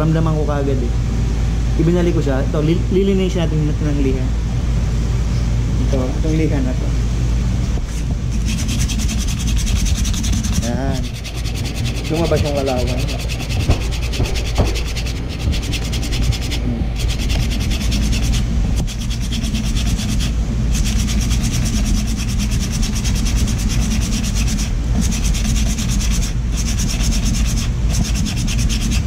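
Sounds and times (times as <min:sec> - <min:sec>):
sandpaper rasping on metal: 0:07.9 - 0:29.0.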